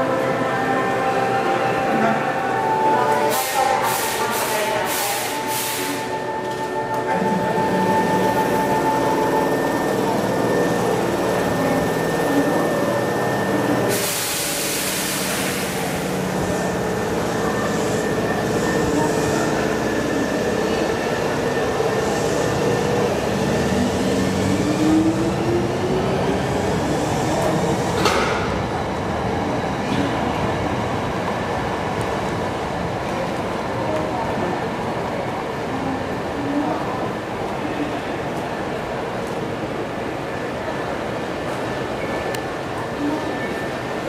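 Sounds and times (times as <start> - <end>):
air hiss: 3.3 - 6.1
train wheels on rails: 7.7 - 35.6.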